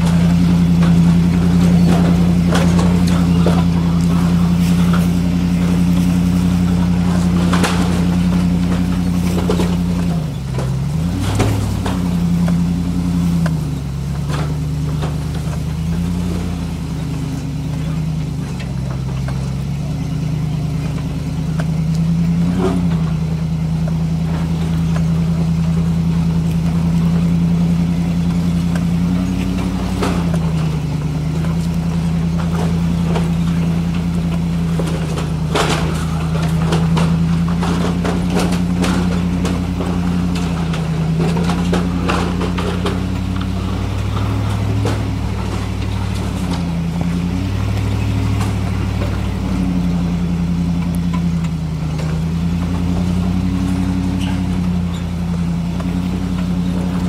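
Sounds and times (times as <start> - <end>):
engine running at low revs: 0.0 - 57.0
rocks clicking under tyres: 0.0 - 57.0.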